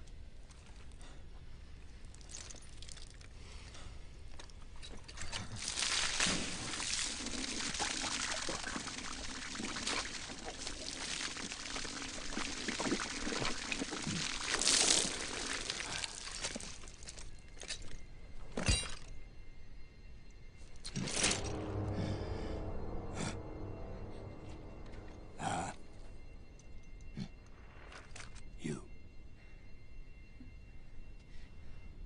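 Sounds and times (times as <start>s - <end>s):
water pouring and splashing: 4.8s - 17.3s.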